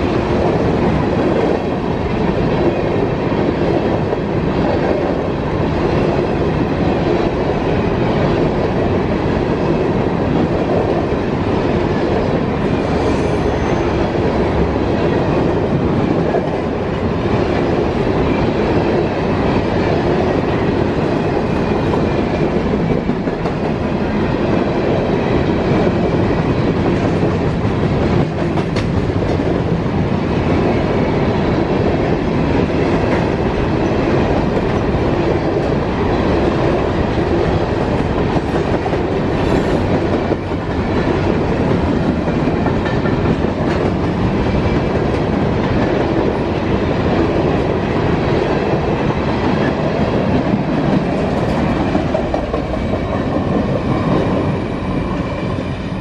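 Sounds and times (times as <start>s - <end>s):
train wheels rumbling on rails: 0.0s - 56.0s
wheels clacking over rail joints: 49.3s - 55.2s.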